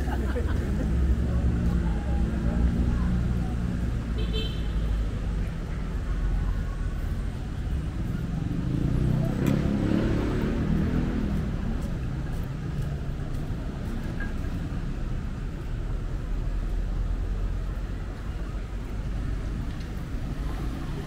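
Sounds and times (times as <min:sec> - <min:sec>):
traffic rumble: 0:00.0 - 0:21.0
motorcycle passing: 0:08.1 - 0:12.9.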